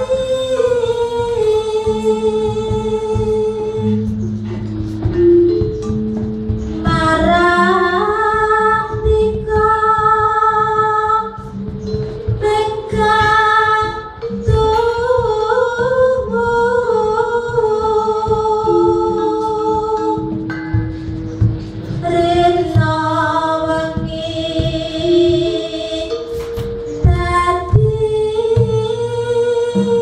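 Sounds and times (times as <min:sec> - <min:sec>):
woman singing long held notes: 0:00.0 - 0:04.2, 0:06.8 - 0:11.8, 0:12.4 - 0:20.4, 0:22.0 - 0:30.0
gamelan ensemble playing: 0:00.0 - 0:30.0.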